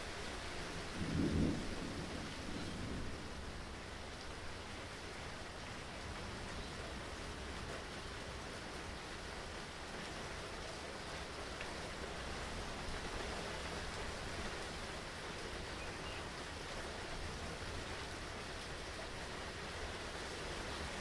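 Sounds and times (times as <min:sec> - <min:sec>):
steady rain: 0:00.0 - 0:21.0.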